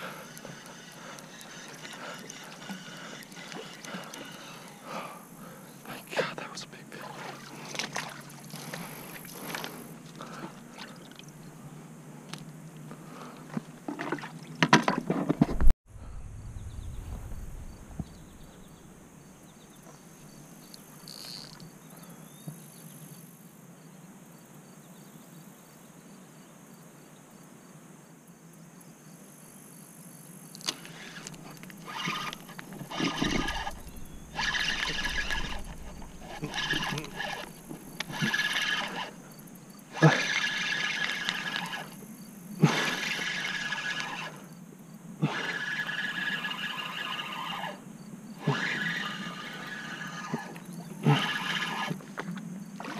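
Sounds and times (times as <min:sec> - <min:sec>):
fishing gear handling: 0:30.6 - 0:39.2.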